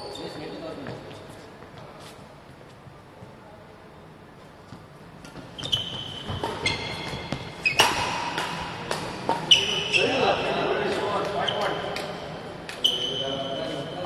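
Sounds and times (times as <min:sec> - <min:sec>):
shoes squeaking on court: 0:04.8 - 0:08.2, 0:09.2 - 0:11.9, 0:12.7 - 0:13.9
racket hitting shuttlecock: 0:06.2 - 0:09.8.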